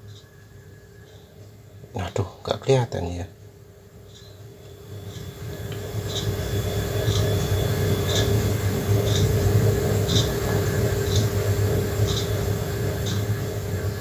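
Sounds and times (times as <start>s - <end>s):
gas burner roaring: 3.2s - 14.0s.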